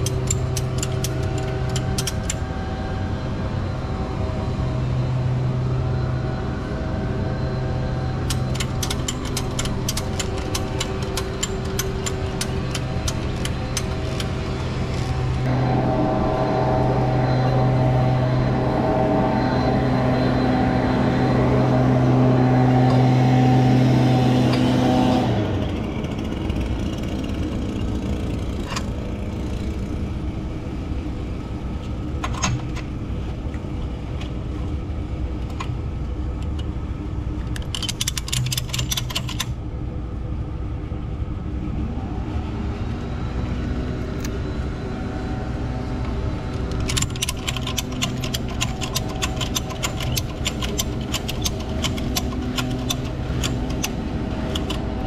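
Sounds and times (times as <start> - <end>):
metal clicks: 0.0 - 2.4, 8.2 - 14.4, 37.4 - 39.5, 46.7 - 55.0
ratchet clicking: 0.0 - 2.4, 8.3 - 14.3, 37.5 - 39.5, 46.8 - 54.8
tow truck engine running: 0.0 - 55.0.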